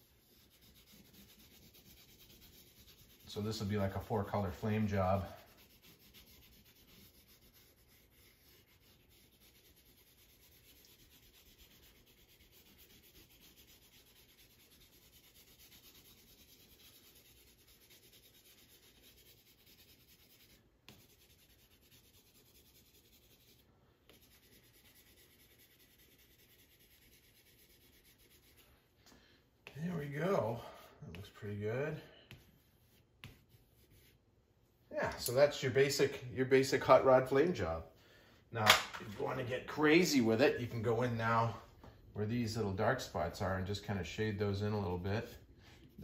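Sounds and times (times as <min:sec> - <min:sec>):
pencil scratching on paper: 0:00.0 - 0:28.8, 0:29.7 - 0:34.2.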